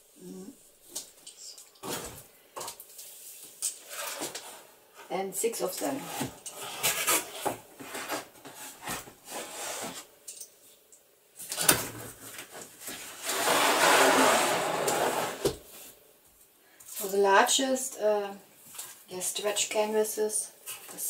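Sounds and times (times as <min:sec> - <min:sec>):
rubbing scrape: 0:05.8 - 0:10.1, 0:12.8 - 0:15.6.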